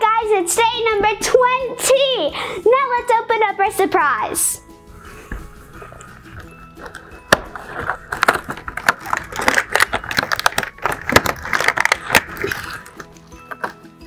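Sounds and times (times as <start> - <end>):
cardboard snapping: 6.1 - 13.8
cardboard crackling and rustling: 6.2 - 13.0.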